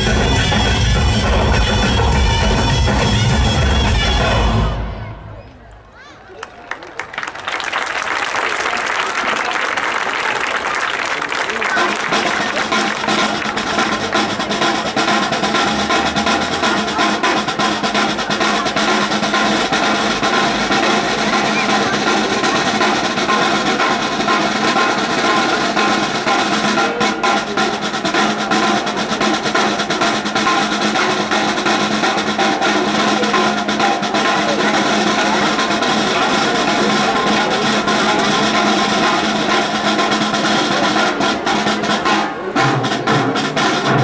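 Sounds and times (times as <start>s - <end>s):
bass drum: 0.0s - 4.8s
snare drum rolls: 7.5s - 44.0s.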